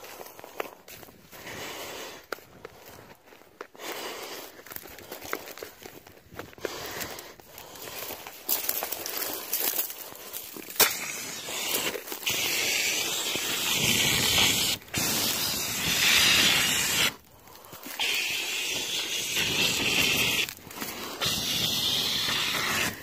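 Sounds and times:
fire extinguisher hissing: 10.8 - 17.2, 17.8 - 23.0.

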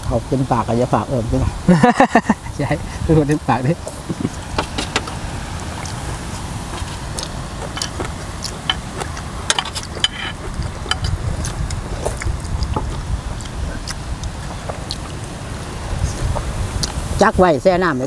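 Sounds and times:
wind rumble on microphone: 0.0 - 18.0
chewing and lip smacks: 5.8 - 15.3, 16.0 - 17.1.

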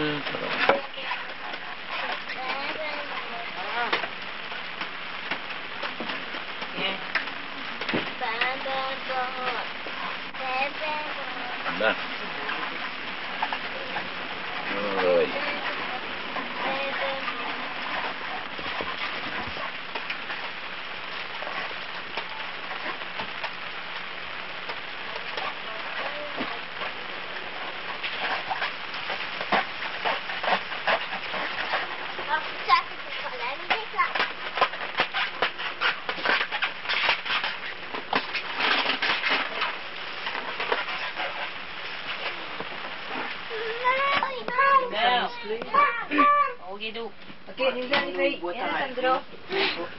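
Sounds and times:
light rain falling: 0.0 - 49.9.

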